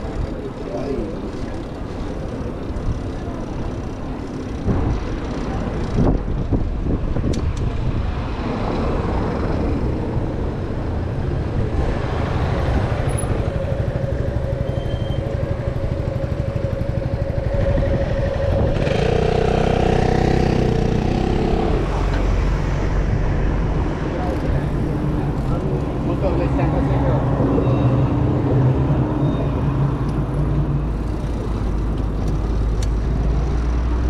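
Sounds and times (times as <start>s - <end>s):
motor vehicle engines: 0.0s - 34.0s
tyres rumbling over brick pavement: 0.0s - 34.0s
wind buffeting microphone: 4.5s - 26.3s
motorcycle engine: 12.2s - 23.4s.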